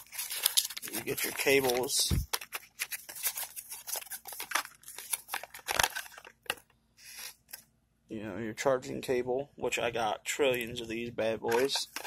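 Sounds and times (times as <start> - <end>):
packaging crinkling and rustling: 0.0 - 7.6, 11.4 - 12.0.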